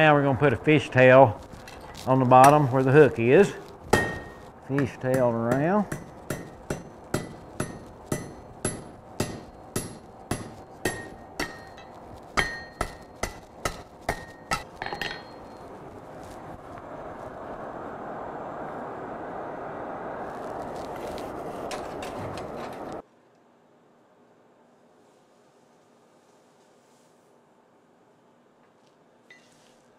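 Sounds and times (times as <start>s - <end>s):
hammer striking steel on anvil: 2.4s - 2.6s, 3.9s - 15.5s.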